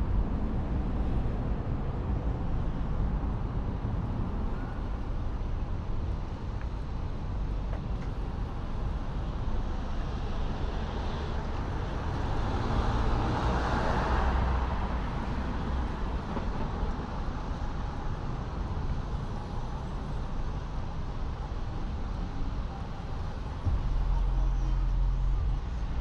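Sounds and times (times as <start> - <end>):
low rumble of traffic: 0.0 - 26.0.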